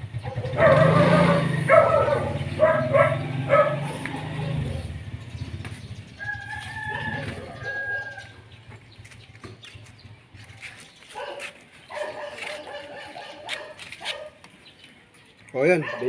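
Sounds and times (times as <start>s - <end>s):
rooster crowing: 6.2s - 8.4s.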